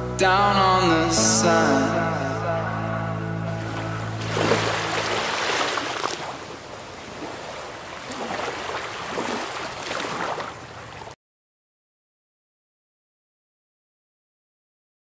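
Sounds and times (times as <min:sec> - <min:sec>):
small waves breaking: 0:03.6 - 0:11.2.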